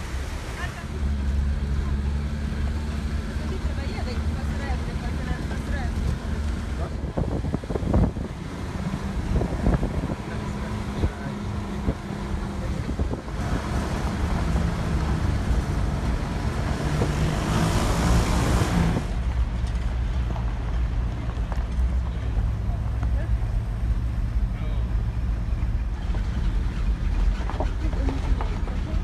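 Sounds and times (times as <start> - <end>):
vehicle engine running: 0.0 - 29.0
wind rushing over microphone: 6.0 - 19.6.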